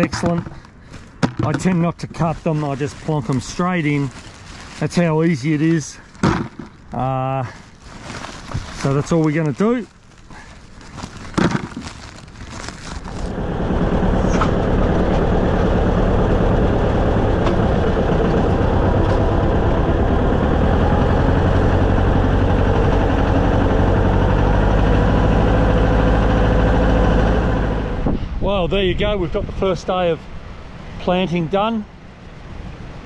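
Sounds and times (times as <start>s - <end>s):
farm vehicle engine running: 12.9s - 28.1s.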